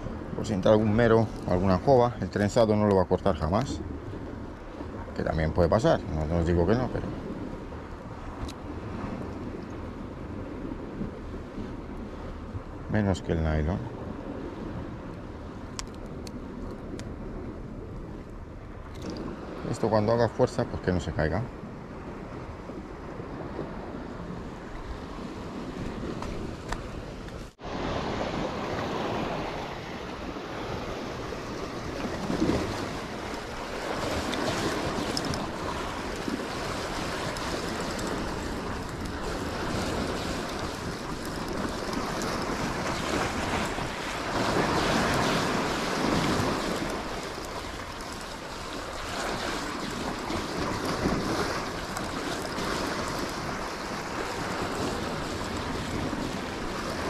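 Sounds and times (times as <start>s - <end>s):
wind buffeting microphone: 0.0s - 57.0s
waves breaking on rocks: 24.6s - 57.0s.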